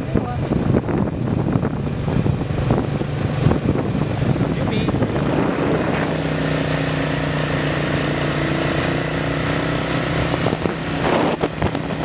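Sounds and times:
scooter engine running: 0.0 - 12.0.

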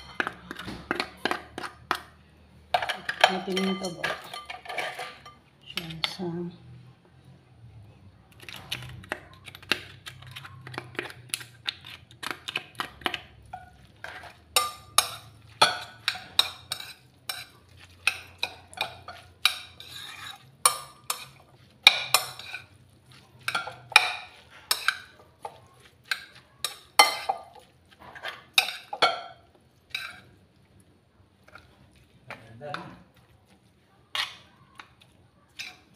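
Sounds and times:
metal spoon scraping ceramic bowl: 2.8 - 6.1, 13.5 - 22.8, 23.4 - 30.3.

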